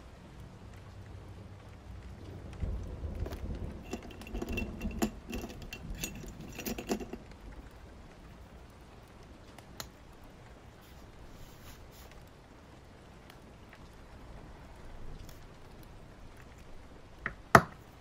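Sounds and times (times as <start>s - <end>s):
steady rain: 0.0s - 18.0s
small objects clicking and rustling: 3.2s - 7.4s.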